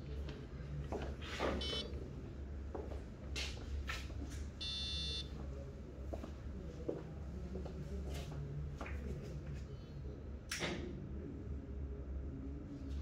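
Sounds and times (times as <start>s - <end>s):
electronic beeps: 1.6s - 1.9s, 4.6s - 5.3s.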